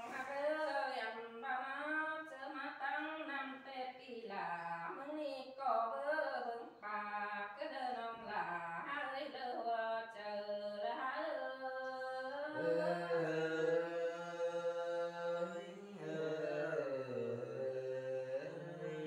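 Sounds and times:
person singing unaccompanied chant: 0:12.4 - 0:19.0.

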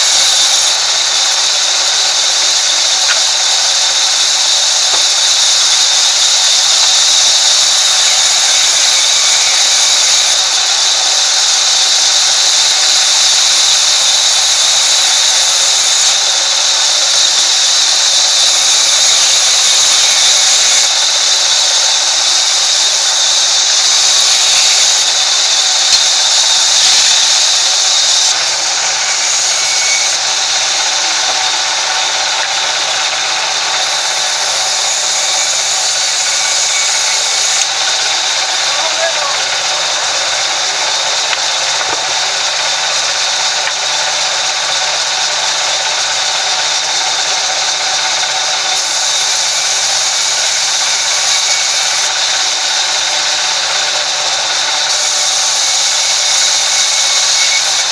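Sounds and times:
band saw ripping wood: 0:00.0 - 0:55.1.

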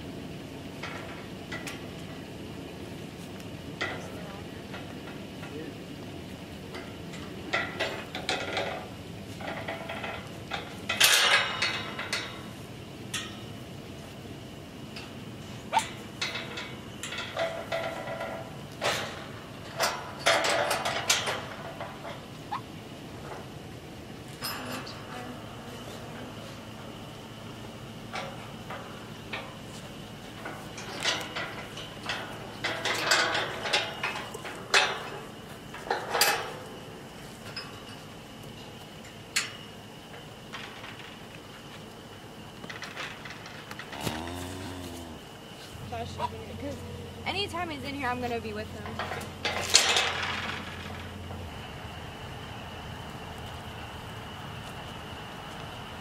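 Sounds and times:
steel panels clanking and rattling: 0:06.7 - 0:12.5, 0:15.7 - 0:22.3, 0:30.3 - 0:36.7, 0:45.9 - 0:51.3.

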